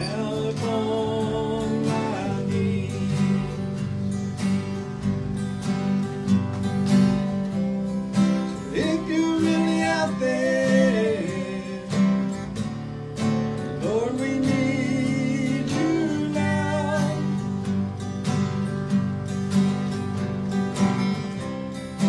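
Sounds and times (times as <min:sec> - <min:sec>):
strummed acoustic guitars: 0:00.0 - 0:22.0.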